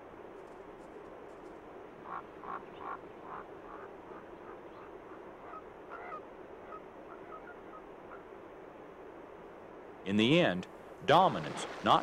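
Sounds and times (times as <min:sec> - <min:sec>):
ravens croaking: 0:02.0 - 0:08.4.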